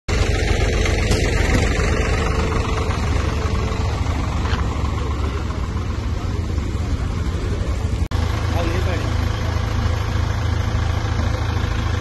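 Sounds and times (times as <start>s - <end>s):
road noise: 0.1s - 12.0s
vehicle engines rumbling: 0.1s - 12.0s.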